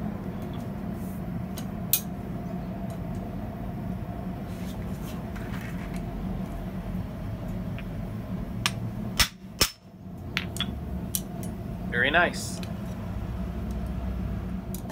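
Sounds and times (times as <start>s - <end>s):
low workshop hum: 0.0s - 14.9s.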